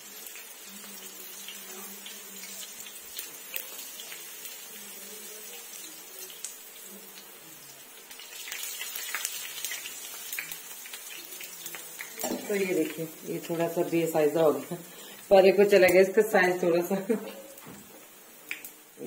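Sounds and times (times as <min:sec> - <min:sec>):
batter sizzling in hot fat: 0:00.0 - 0:19.0.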